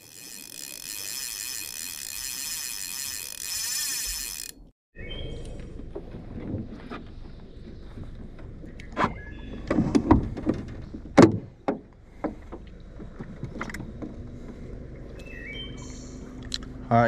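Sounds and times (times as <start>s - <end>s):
knocks and thumps in boat: 5.8s - 14.7s.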